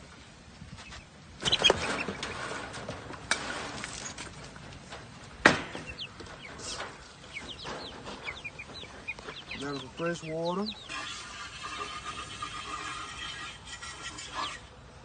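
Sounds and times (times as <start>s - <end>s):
chicks peeping: 0.7s - 2.6s, 5.4s - 14.7s
cage clattering: 1.4s - 12.1s.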